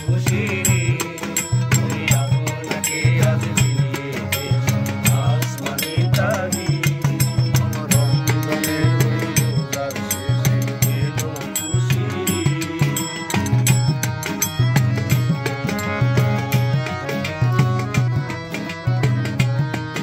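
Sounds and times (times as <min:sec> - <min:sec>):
man singing: 0:00.0 - 0:14.0
acoustic guitar: 0:00.0 - 0:20.0
drum beating steady rhythm: 0:00.0 - 0:20.0
harmonium: 0:00.0 - 0:20.0
mandolin: 0:00.0 - 0:20.0.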